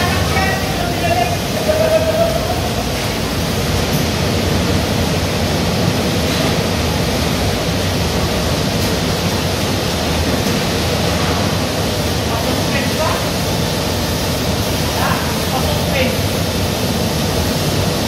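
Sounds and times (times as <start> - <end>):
industrial rushing hiss: 0.0 - 18.0.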